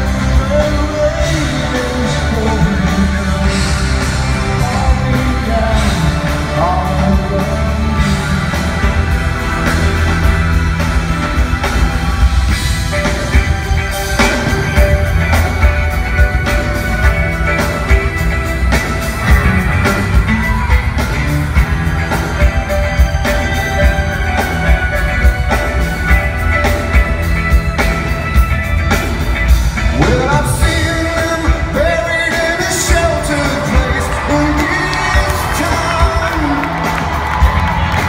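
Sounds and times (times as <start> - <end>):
man singing: 0.0 - 9.6, 29.9 - 37.2
rock band playing: 0.0 - 38.0.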